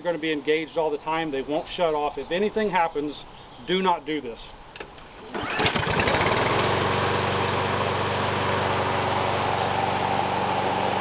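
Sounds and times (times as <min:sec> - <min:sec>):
lawn mower engine starting and running: 0:04.7 - 0:11.0.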